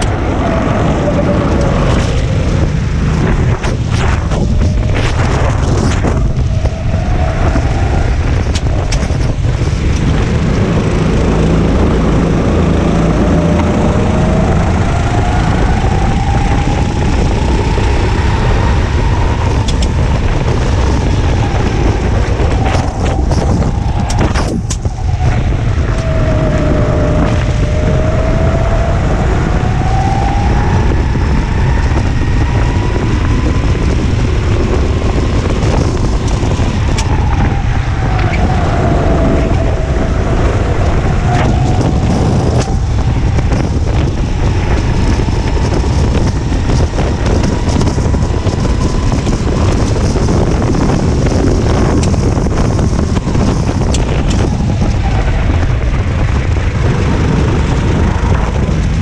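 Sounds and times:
wind rumble on microphone: 0.0 - 59.0
go-kart engine revving: 7.3 - 30.0.

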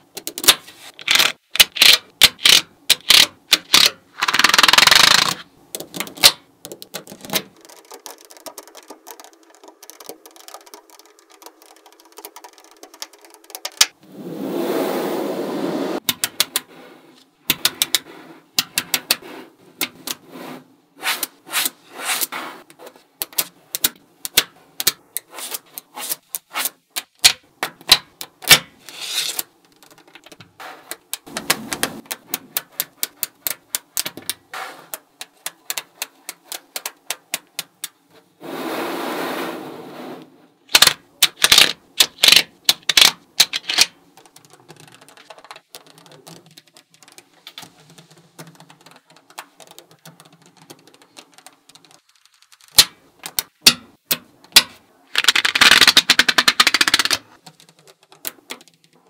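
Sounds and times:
magnetic balls clicking together: 0.0 - 14.0, 16.0 - 16.7, 17.4 - 19.2, 22.6 - 25.3, 29.3 - 38.1, 40.7 - 59.0.

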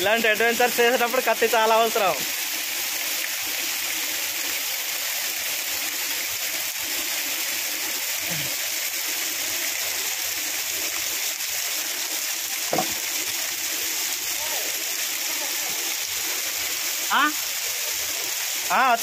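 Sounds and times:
waterfall rushing: 12.4 - 19.0.

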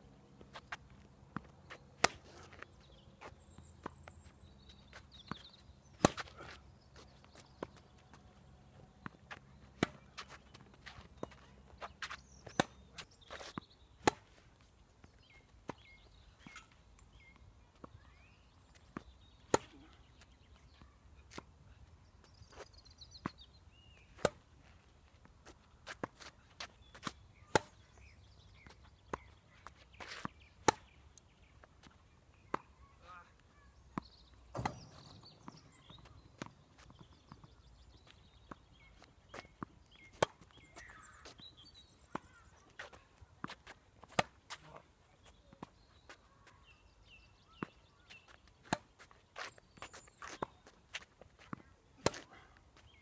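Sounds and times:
tennis ball bouncing on court: 1.3 - 2.6, 5.2 - 6.3, 19.0 - 20.3, 25.9 - 29.3, 30.1 - 31.0, 34.0 - 37.7, 38.3 - 41.4, 42.1 - 44.6, 47.6 - 52.3.

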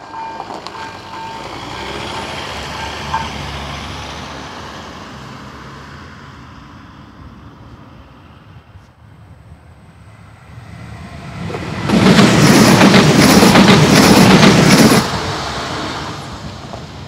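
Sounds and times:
train wheels clacking on rail joints: 0.0 - 3.5, 11.4 - 17.0
train passing: 0.0 - 17.0.

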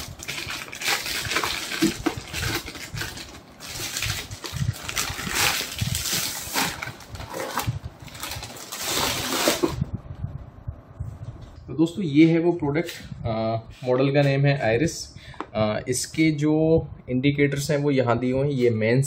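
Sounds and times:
plastic bag rustling and crinkling: 0.0 - 9.9.

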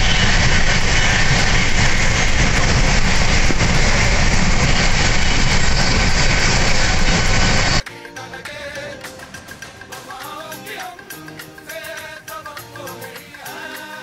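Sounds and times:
wind rushing through window: 0.0 - 7.8
moving passenger train: 0.0 - 14.0.

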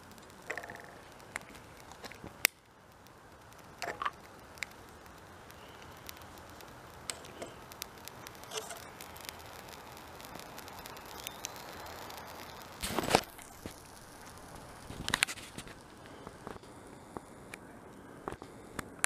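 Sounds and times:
stove burning with crackles: 0.0 - 19.0.

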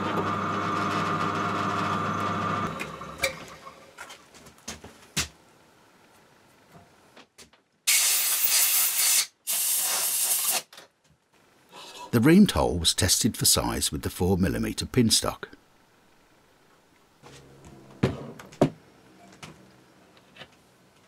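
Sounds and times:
loud bursts of hiss: 7.9 - 10.6.

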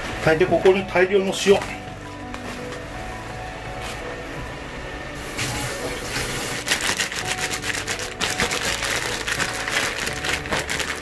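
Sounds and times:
plastic bag crinkling: 6.0 - 11.0.

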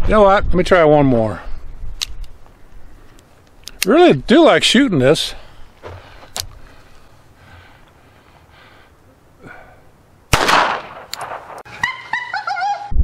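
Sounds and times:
pistol shot echoing: 10.3 - 11.7.

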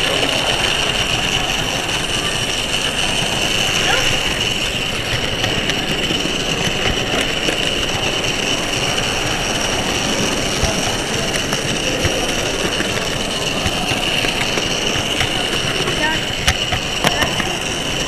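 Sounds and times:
model train whine: 0.0 - 18.0
wheels ticking over rail joints: 0.0 - 18.0.

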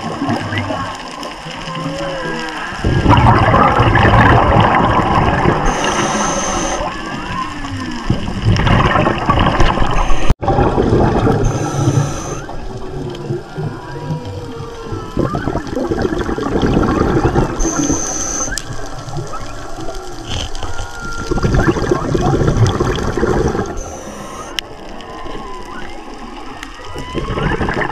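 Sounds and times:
water wash and bubbling: 0.0 - 27.9
whale song underwater: 0.0 - 27.9
thin high steady tone: 5.6 - 6.9.

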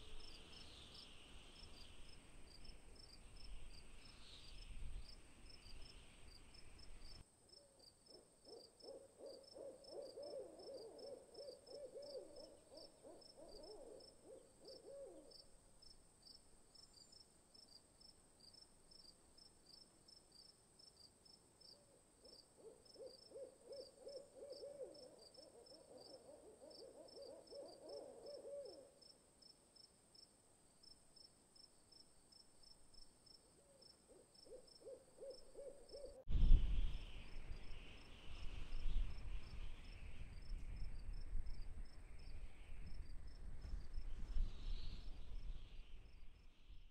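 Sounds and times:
faint owl calls: 7.6 - 15.5, 21.7 - 29.1, 33.4 - 36.3.

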